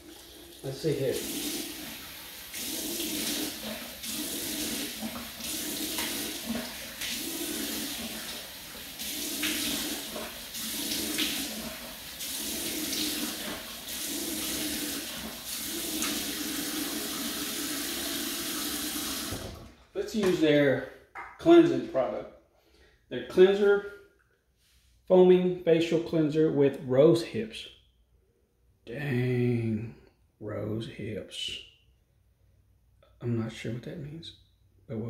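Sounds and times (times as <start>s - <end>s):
faucet running into sink: 0.0s - 19.7s
water splashing onto face: 1.2s - 17.1s.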